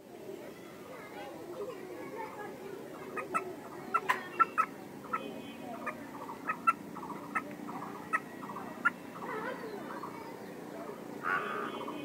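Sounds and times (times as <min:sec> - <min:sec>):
hen clucking: 0:02.9 - 0:09.4.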